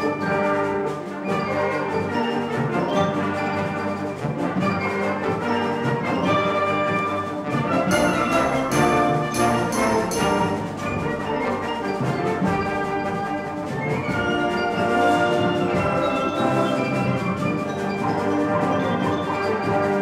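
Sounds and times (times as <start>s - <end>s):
wind band playing chords: 0.0s - 20.0s
sharp percussion strikes: 4.7s - 19.8s.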